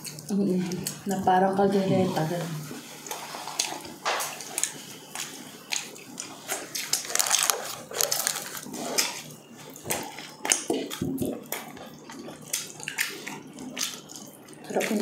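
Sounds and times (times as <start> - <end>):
chewing and mouth smacking: 3.0 - 15.0.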